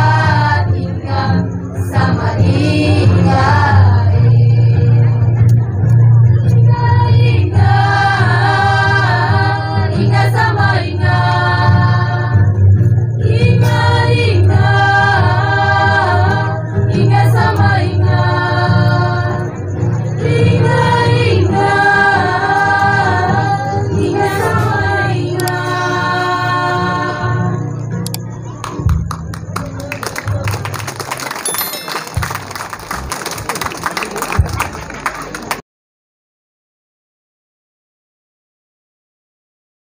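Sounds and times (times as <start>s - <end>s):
girls singing together: 0.0s - 5.2s, 6.4s - 12.6s, 13.2s - 19.5s, 20.1s - 27.6s.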